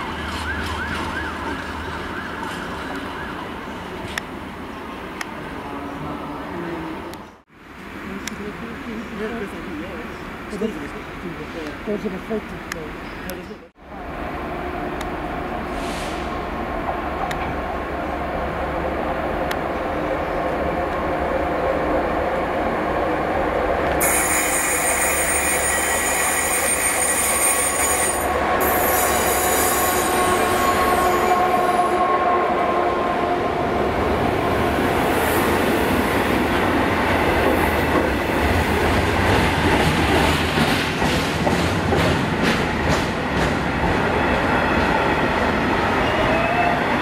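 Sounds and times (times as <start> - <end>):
diesel locomotive running past: 0.0 - 47.0
freight wagons rumbling on rails: 33.6 - 47.0.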